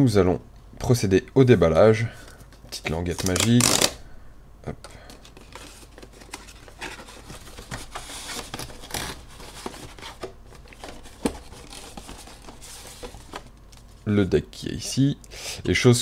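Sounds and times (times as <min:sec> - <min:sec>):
cardboard rustling and scraping: 0:05.2 - 0:14.0.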